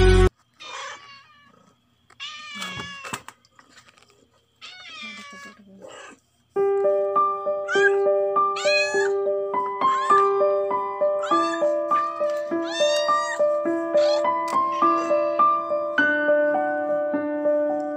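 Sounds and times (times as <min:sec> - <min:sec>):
cat meowing: 0:00.6 - 0:03.2, 0:04.6 - 0:06.2, 0:07.6 - 0:10.4, 0:11.2 - 0:15.7
simple keyboard melody: 0:06.6 - 0:17.9.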